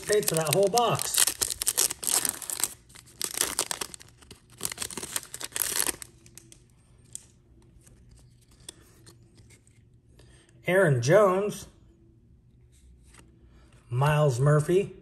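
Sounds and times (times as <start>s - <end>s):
foil wrapper tearing and crinkling: 0.0s - 7.2s
faint rustles and clicks of cards: 0.0s - 10.6s, 12.5s - 13.9s.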